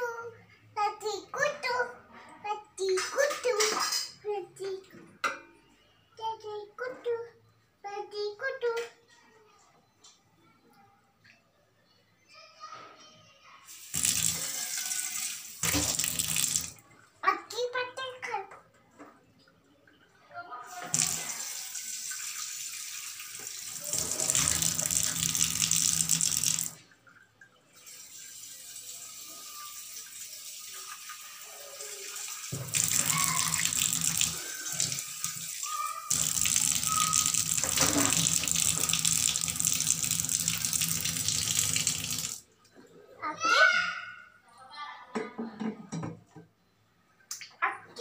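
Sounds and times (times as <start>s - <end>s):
tap water running into sink: 13.7s - 16.8s, 20.8s - 27.2s, 27.8s - 42.4s
water splashing off a dish: 13.7s - 16.8s, 20.8s - 26.8s, 30.6s - 35.5s, 36.1s - 42.4s.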